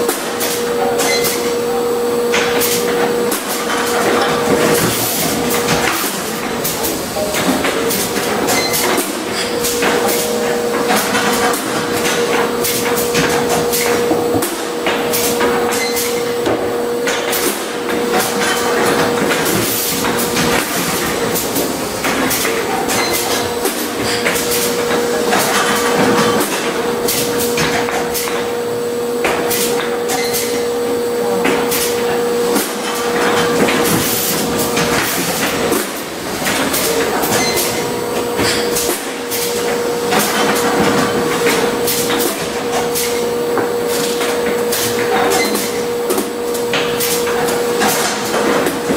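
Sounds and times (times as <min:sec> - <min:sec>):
machine hum with steady tone: 0:00.0 - 0:48.9.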